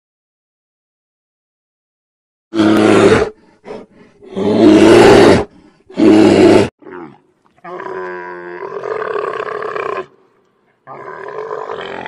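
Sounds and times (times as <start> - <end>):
polar bear roaring: 2.6 - 10.2, 10.8 - 12.0
camel grunting groan: 10.8 - 12.0.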